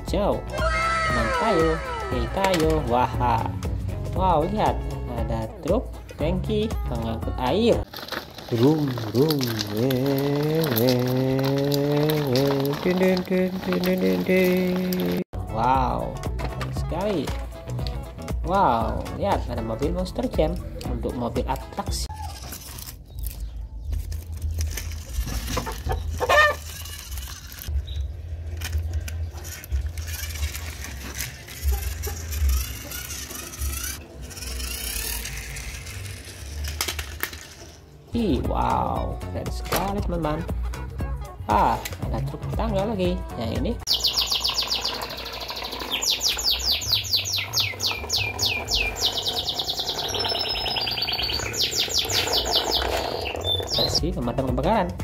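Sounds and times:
toy truck scraping over stones: 7.7 - 15.3, 21.6 - 27.8, 28.4 - 38.0, 43.9 - 54.0
songbird chirping and trilling: 43.8 - 54.6.

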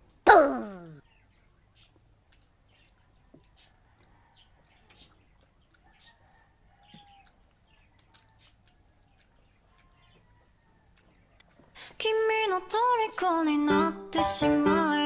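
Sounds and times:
chewing clicks: 0.8 - 11.9.

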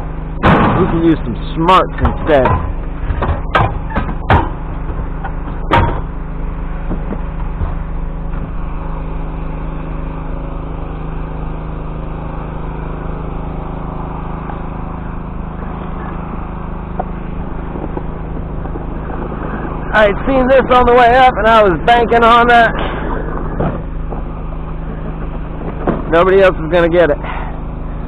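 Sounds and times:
vehicle engine running: 0.0 - 28.0
door slam: 0.4 - 1.0.

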